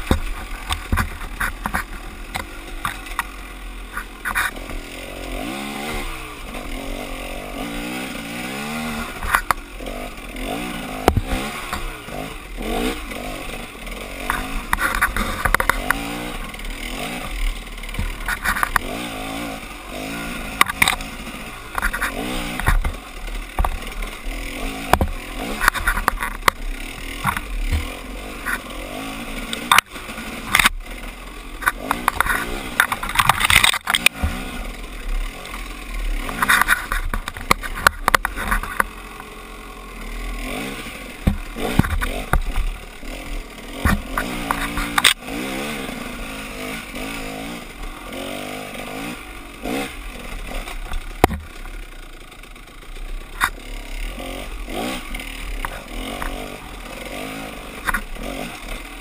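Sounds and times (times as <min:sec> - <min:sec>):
branches scraping against bike: 0:00.0 - 0:59.0
dirt bike engine revving: 0:00.0 - 0:59.0
sharp knocks from rough trail: 0:00.0 - 0:59.0.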